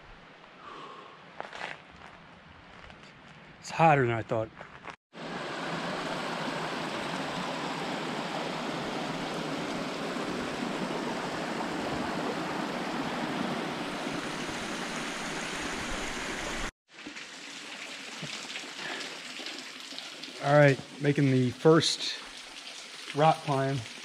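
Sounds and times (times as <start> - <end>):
water rushing over a cascade: 5.2 - 16.7.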